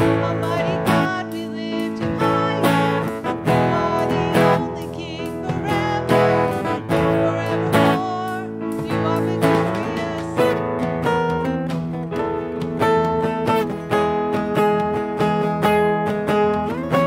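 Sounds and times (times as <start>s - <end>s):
person singing: 0.0s - 11.5s, 16.4s - 17.0s
strummed acoustic guitar: 0.0s - 17.0s.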